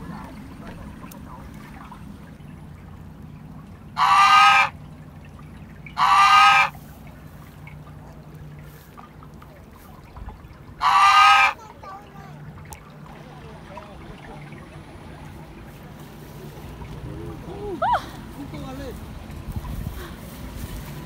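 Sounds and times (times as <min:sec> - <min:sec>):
geese honking: 0:03.9 - 0:04.8, 0:05.9 - 0:06.9, 0:10.8 - 0:11.7.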